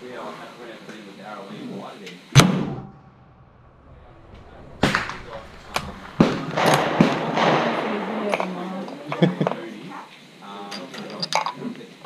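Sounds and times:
rifle shot with echo: 2.4 - 8.6.

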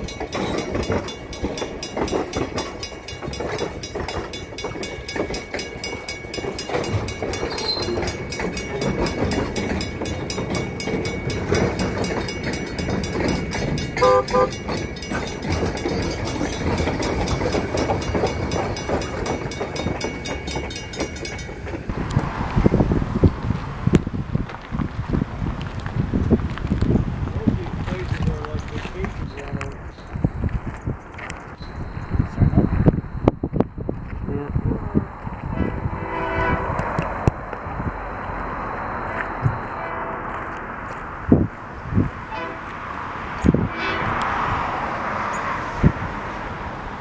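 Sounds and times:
crossing bell ringing: 0.0 - 22.8, 28.5 - 33.2, 35.6 - 41.0, 42.3 - 42.7
train wheels rumbling and clattering: 0.0 - 47.0.

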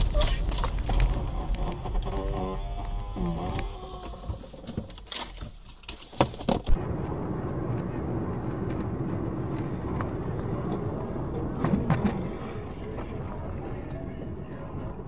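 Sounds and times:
car driving interior noise: 6.3 - 15.0.

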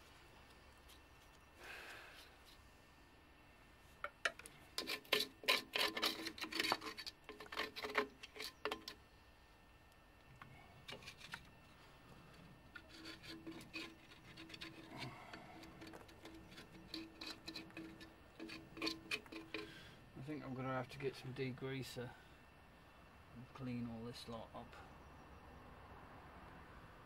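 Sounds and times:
scrubbing and scraping metal: 4.4 - 9.0, 10.8 - 11.5, 12.6 - 20.4.

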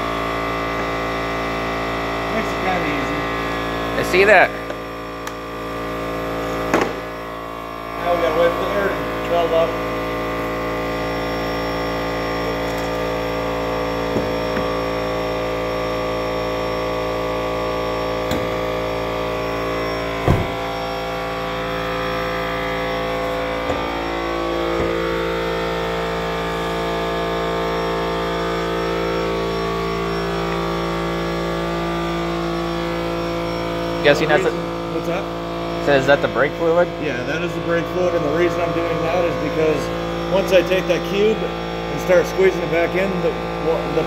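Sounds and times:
air compressor humming: 0.0 - 44.0.

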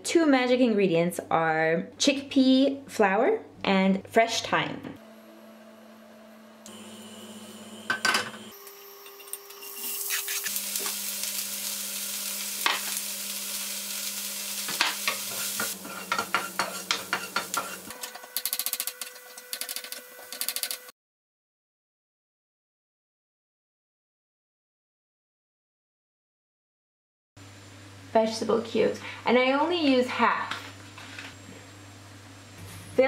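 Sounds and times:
onion sizzling in frying pan: 6.7 - 18.1
wooden spoon scraping pan: 14.7 - 17.9.

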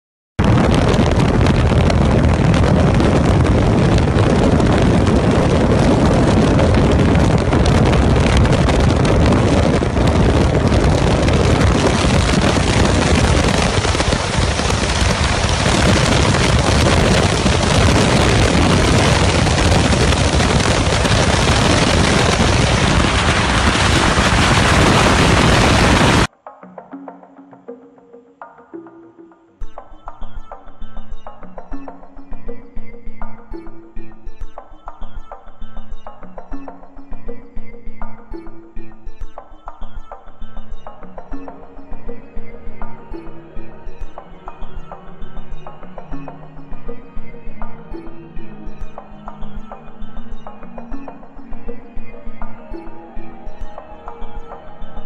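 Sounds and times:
wind buffeting microphone: 0.4 - 26.3.

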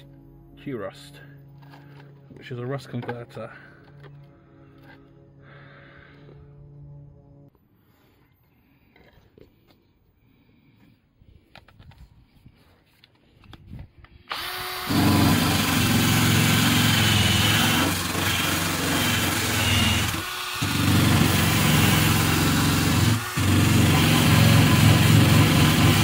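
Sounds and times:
drill wire brush scrubbing metal: 14.3 - 26.0.

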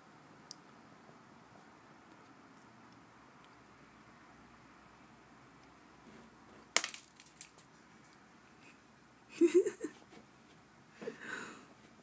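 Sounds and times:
person giggling: 9.3 - 10.0.

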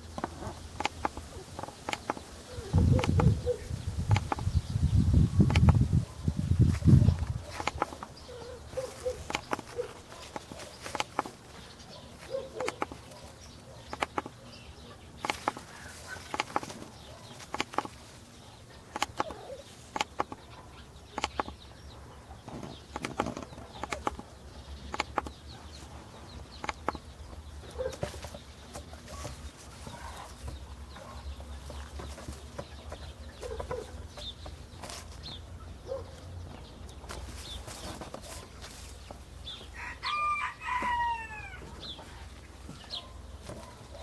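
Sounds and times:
sharp clicks and rustles: 0.0 - 4.7, 5.4 - 21.6, 22.4 - 39.7
low animal calls: 1.2 - 4.4.

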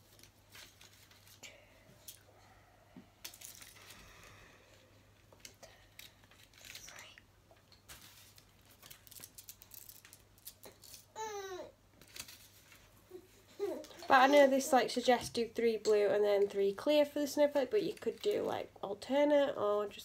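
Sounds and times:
plastic packet crinkling: 7.8 - 11.2
beads clicking: 8.8 - 11.1.

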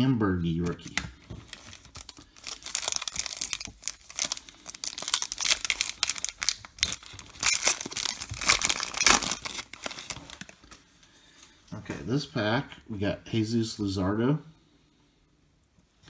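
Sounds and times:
foil ripping: 0.6 - 10.7
foil wrapper crinkling: 0.6 - 10.9.

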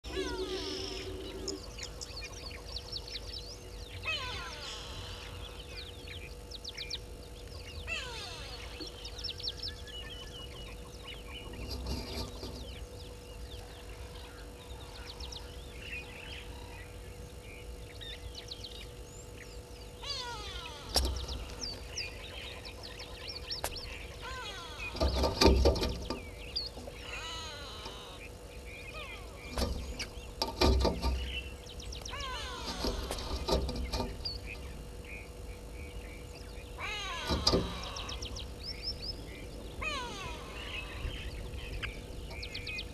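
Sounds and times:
low rumble: 0.0 - 3.8
birds chirping and trilling: 0.0 - 42.9
faint steady hum: 0.0 - 42.9.

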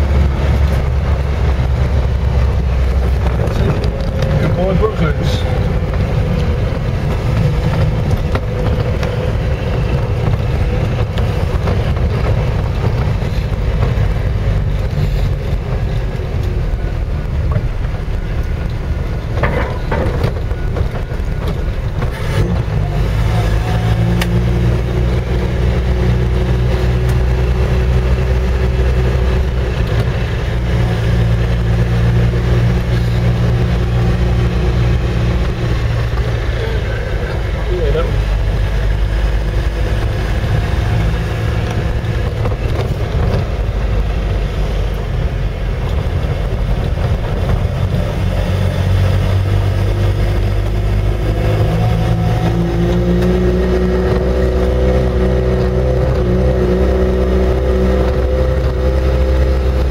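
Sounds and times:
engine drone inside vehicle cab: 0.0 - 59.9.

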